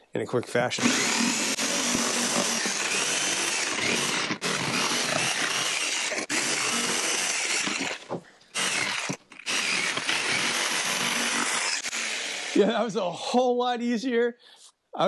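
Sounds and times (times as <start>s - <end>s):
jigsaw cutting plastic: 0.8s - 12.7s.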